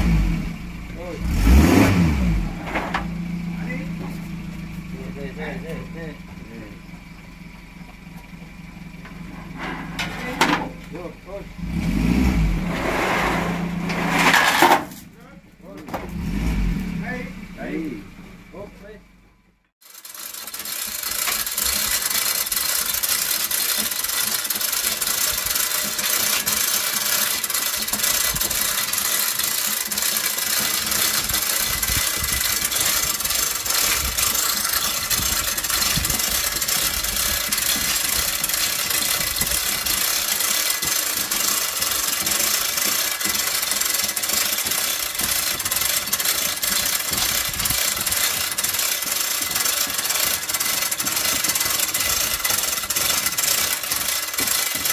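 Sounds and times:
engine running steadily: 0.0s - 54.9s
chain hoist chain rattling: 19.8s - 54.9s.

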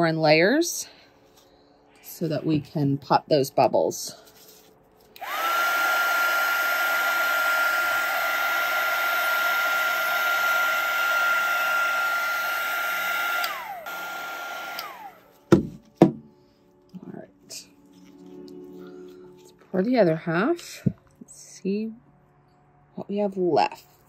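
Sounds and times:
heat gun fan whining: 5.1s - 16.1s.

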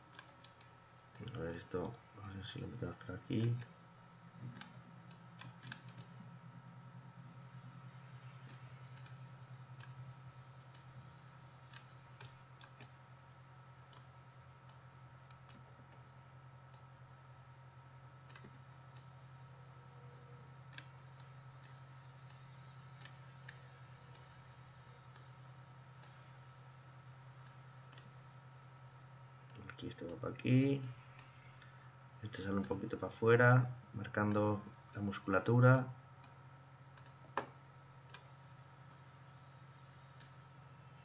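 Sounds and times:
steady low hum: 0.0s - 41.0s
computer mouse clicks: 0.1s - 2.0s, 4.4s - 6.2s, 8.2s - 9.2s, 9.8s - 10.0s, 10.6s - 13.0s, 13.9s - 16.1s, 18.2s - 19.2s, 20.7s - 24.4s, 25.9s - 26.3s, 27.4s - 28.2s, 36.2s - 39.1s.

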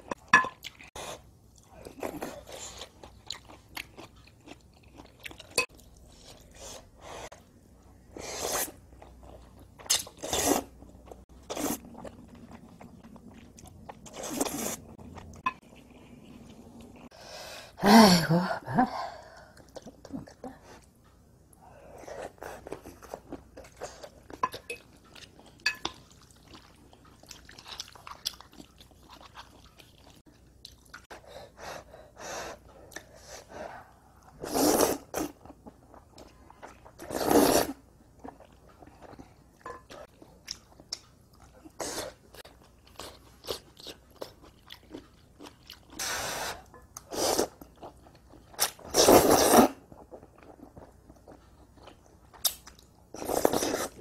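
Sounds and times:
soft chewing: 0.1s - 8.0s, 8.7s - 17.1s, 19.4s - 31.2s, 38.2s - 48.9s, 49.8s - 54.0s
loud noodle slurps: 34.4s - 35.4s, 37.0s - 37.8s, 48.9s - 49.8s.

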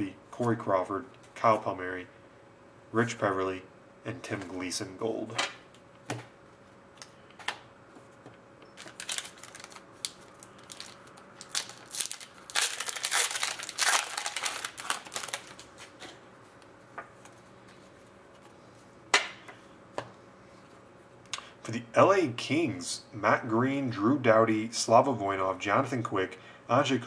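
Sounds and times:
foil pack crinkling: 8.8s - 16.0s.

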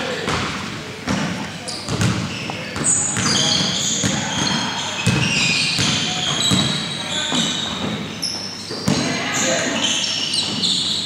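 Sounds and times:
voices in gym: 0.0s - 11.0s
basketball bouncing on hardwood: 1.9s - 2.2s.

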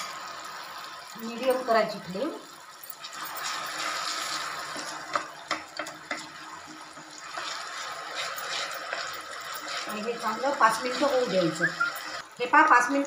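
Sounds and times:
seeds sizzling in hot fat: 0.0s - 13.0s
wooden spatula scraping pan: 7.2s - 11.6s.

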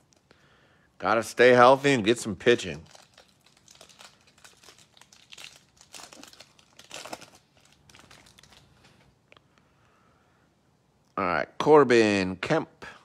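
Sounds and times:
wrapper crackling: 2.4s - 9.1s.

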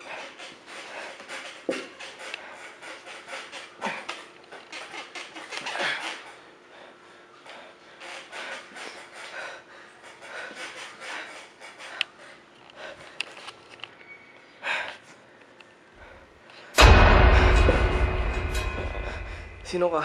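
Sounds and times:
heavy panting breaths: 0.0s - 4.9s, 5.5s - 13.6s
bass-heavy music sting: 16.8s - 20.0s.

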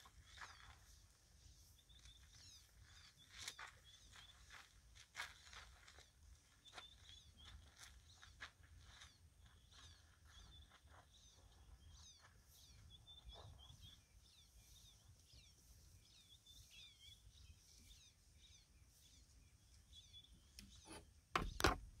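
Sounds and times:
birds chirping faintly: 0.0s - 22.0s
loud knocks: 21.4s - 21.9s.

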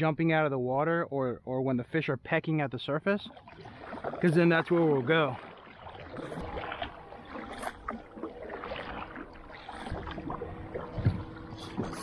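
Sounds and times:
water lapping along kayak hull: 2.8s - 12.0s.

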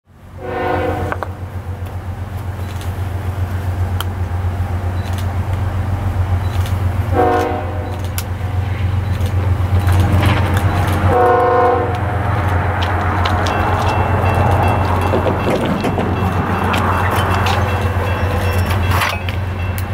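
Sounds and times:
diesel locomotives rumbling: 0.1s - 19.9s
locomotive air horn blasts: 0.3s - 1.3s, 7.1s - 8.0s, 11.0s - 12.0s.

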